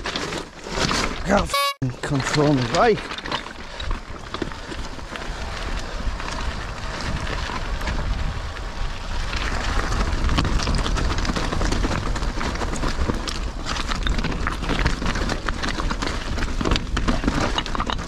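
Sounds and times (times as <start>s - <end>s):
mountain bike clattering and rattling: 0.0s - 1.4s, 2.0s - 18.0s
tyres rumbling over stones: 0.0s - 18.0s
wind buffeting microphone: 3.6s - 18.0s.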